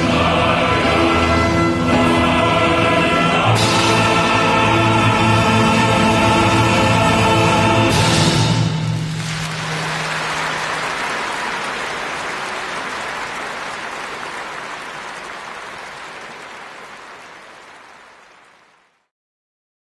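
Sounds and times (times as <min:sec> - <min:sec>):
audience applauding: 0:09.0 - 0:19.1.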